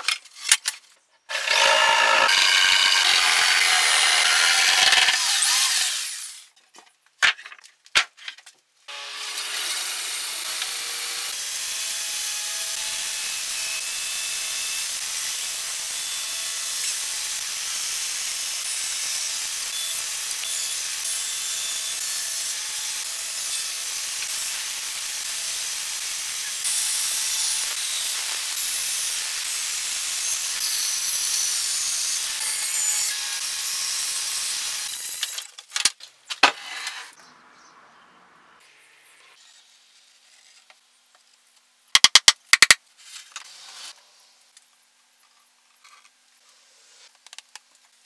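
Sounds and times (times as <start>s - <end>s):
bandsaw cutting wood: 1.3s - 6.4s, 8.9s - 35.5s.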